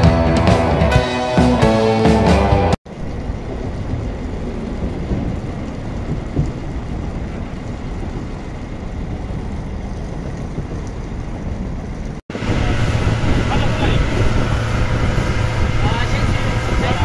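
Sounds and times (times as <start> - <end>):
wind buffeting microphone: 2.9 - 17.0.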